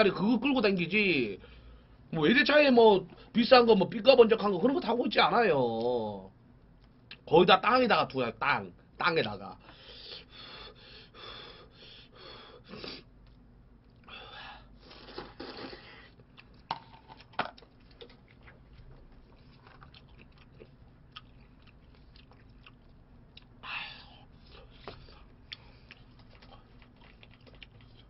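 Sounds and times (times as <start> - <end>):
chewing: 14.8 - 28.0.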